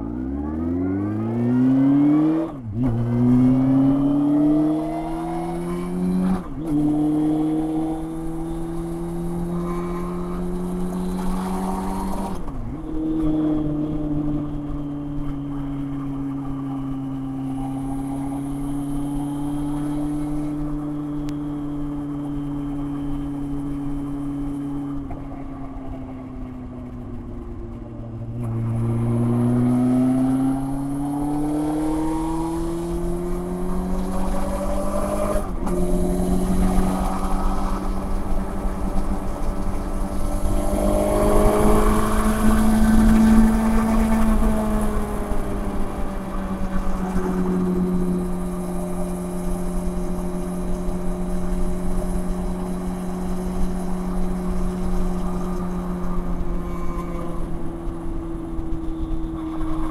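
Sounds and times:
motorcycle engine revving through gears: 0.0s - 59.9s.

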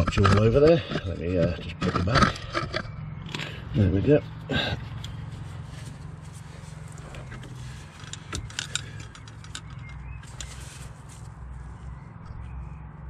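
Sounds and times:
hand tool clicks and taps: 7.2s - 10.6s.

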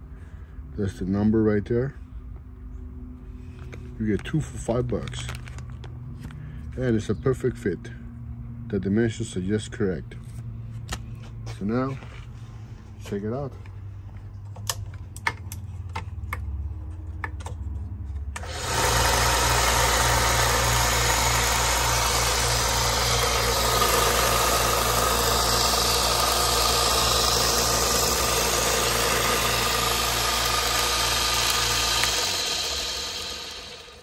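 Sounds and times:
belt sander motor humming: 18.4s - 34.0s
sanding belt hissing: 18.4s - 34.0s.

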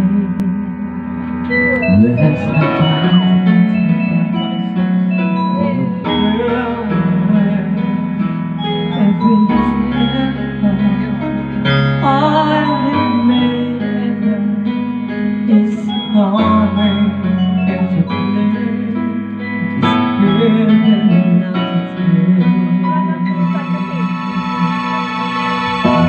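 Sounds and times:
instrumental backing music: 0.0s - 26.0s
man singing into a microphone: 1.6s - 4.8s, 5.5s - 8.0s, 19.6s - 23.5s.

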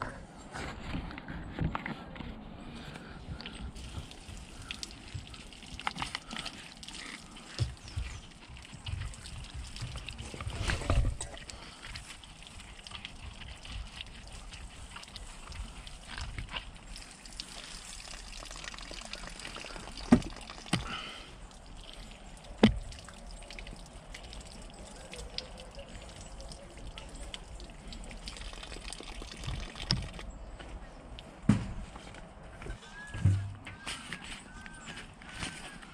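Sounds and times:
water trickling onto hands: 3.3s - 30.5s.

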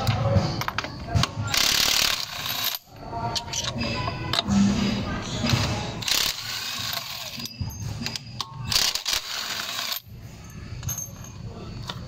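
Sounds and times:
cordless impact wrench: 8.7s - 10.0s.

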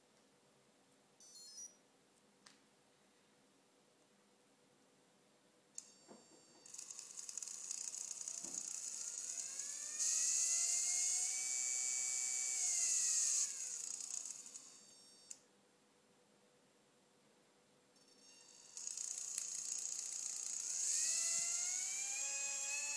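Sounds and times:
electric motor whine: 8.4s - 14.8s, 20.4s - 22.9s
high-pitched whirring hiss: 18.6s - 22.9s.

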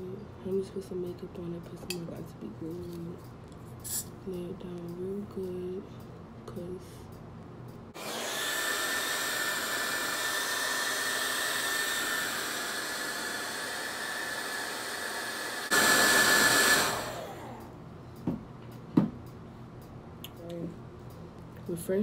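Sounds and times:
hair dryer blowing with whine: 7.9s - 17.8s.

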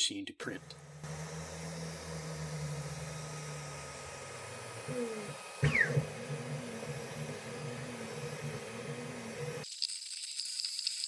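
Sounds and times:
pulsing motor whir: 0.6s - 9.6s
three d printer motors humming: 0.6s - 9.6s.

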